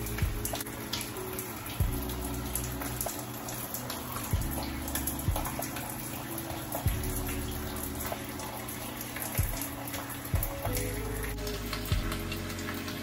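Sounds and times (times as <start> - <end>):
background music with bass: 0.0 - 13.0
shower water splashing: 0.0 - 13.0
deep thumps: 0.2 - 0.6, 5.3 - 5.6.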